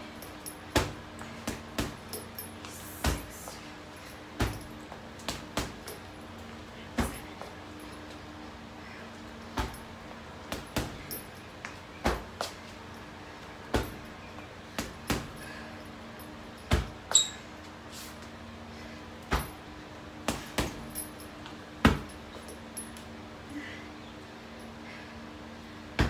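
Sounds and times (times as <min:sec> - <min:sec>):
steady low hum: 0:00.0 - 0:26.0
boxing gloves punching heavy bag: 0:00.4 - 0:03.6, 0:04.4 - 0:06.0, 0:06.9 - 0:07.5, 0:09.5 - 0:09.9, 0:10.5 - 0:11.3, 0:12.1 - 0:12.4, 0:13.7 - 0:14.1, 0:14.7 - 0:15.5, 0:16.6 - 0:17.0, 0:19.3 - 0:19.6, 0:20.2 - 0:21.1, 0:21.8 - 0:22.2.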